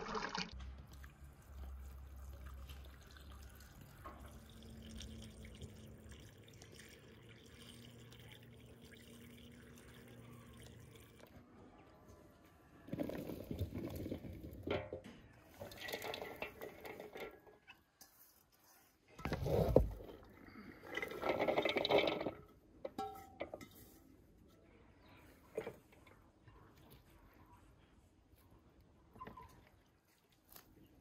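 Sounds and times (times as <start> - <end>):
vegetables pouring into metal basin: 20.8 - 22.5.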